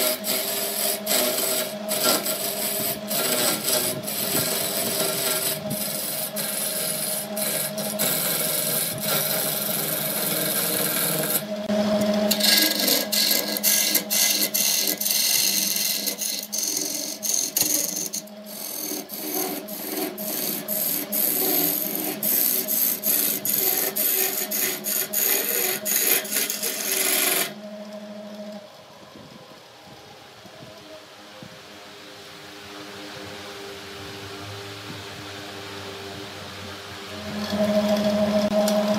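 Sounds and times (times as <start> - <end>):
turning tool scraping wood: 0.0 - 27.6
wood lathe running: 0.0 - 28.6, 37.0 - 38.9.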